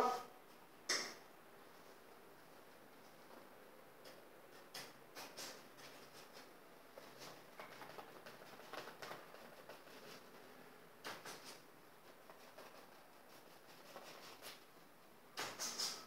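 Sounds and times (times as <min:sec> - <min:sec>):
paintbrush strokes on canvas: 0:11.3 - 0:14.7.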